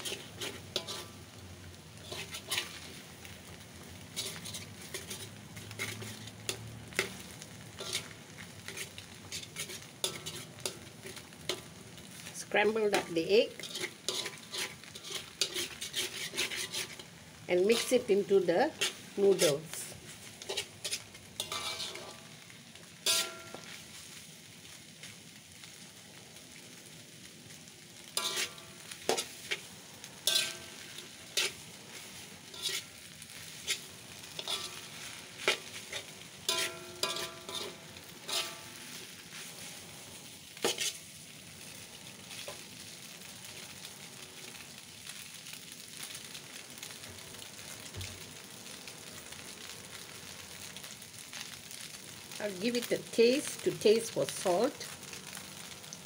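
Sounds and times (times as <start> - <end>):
metal spatula scraping and knocking wok: 0.0 - 1.3, 2.0 - 3.0, 4.0 - 11.8, 12.9 - 22.4, 23.0 - 23.9, 28.1 - 40.0, 40.6 - 41.1
noodles sizzling in a wok: 0.0 - 56.0.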